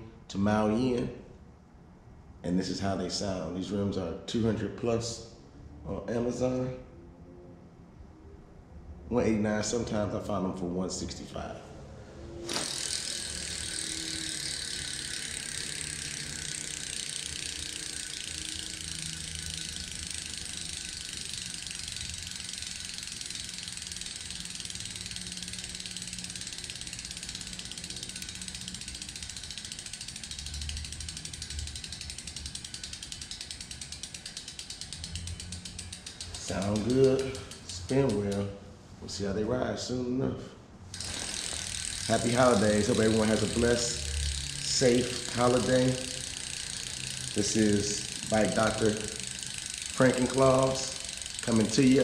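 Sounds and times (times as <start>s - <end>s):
bicycle freehub clicking: 12.5s - 38.5s, 40.9s - 52.0s.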